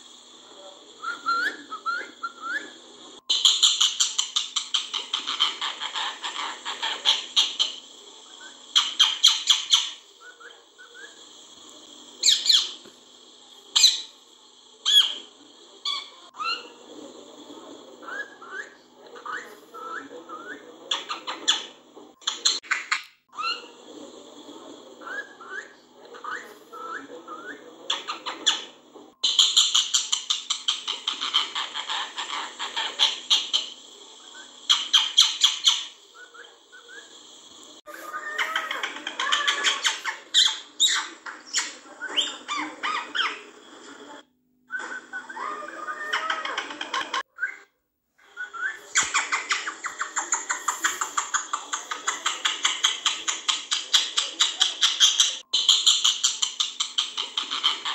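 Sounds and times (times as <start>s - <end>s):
parakeet calling: 0.9s - 12.9s, 13.7s - 14.2s, 14.8s - 16.9s, 24.9s - 43.6s, 44.8s - 47.6s, 48.3s - 57.9s.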